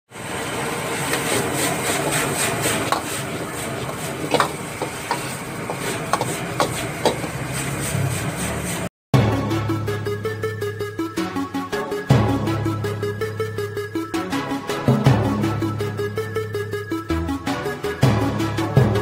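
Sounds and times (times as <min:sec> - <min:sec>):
food sizzling: 0:00.1 - 0:08.9
gas burner rushing: 0:00.1 - 0:08.9
metal spatula scraping a wok: 0:00.9 - 0:08.9.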